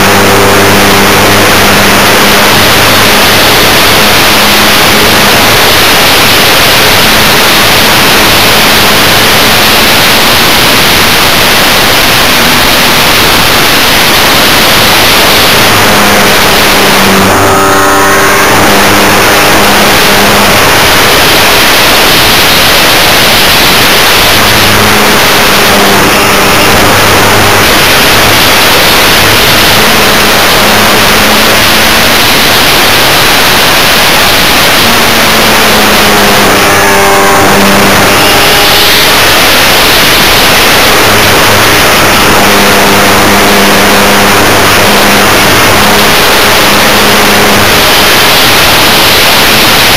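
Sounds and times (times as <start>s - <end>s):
wind and propeller rush: 0.0s - 49.9s.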